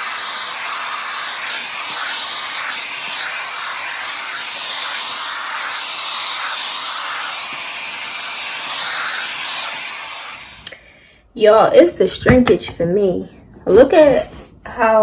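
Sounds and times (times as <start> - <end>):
hot-air dryer brush hissing: 0.0 - 10.8.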